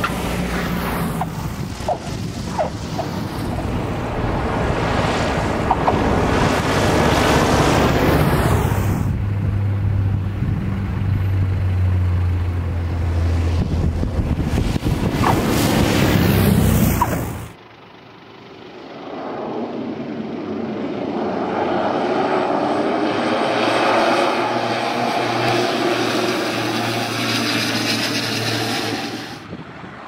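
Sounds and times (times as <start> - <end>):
rushing air: 0.0 - 9.4, 13.2 - 17.6
wind buffeting microphone: 0.0 - 11.1, 13.3 - 16.5, 29.4 - 30.0
propeller aircraft engine drone: 0.0 - 30.0.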